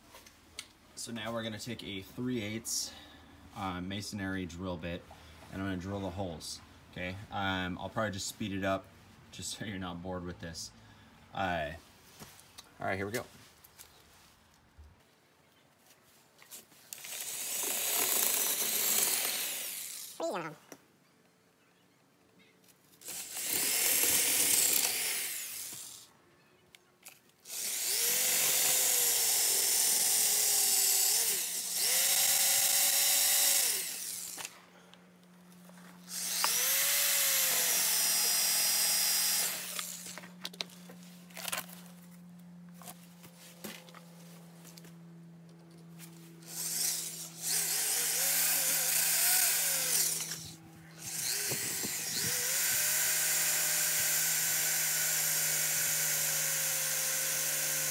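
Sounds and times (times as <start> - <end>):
electric drill drilling into brick: 17.0 - 20.2, 23.0 - 26.0, 27.5 - 34.5, 36.1 - 40.2, 46.4 - 57.9.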